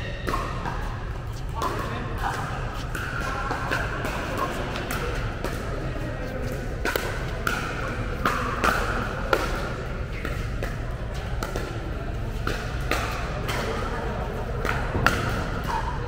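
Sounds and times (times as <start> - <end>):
paddles hitting plastic ball: 0.2 - 13.8, 14.5 - 15.7.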